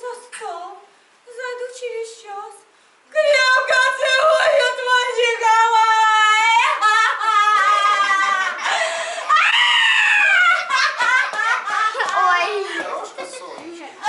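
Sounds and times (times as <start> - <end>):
woman wailing: 6.1 - 11.2.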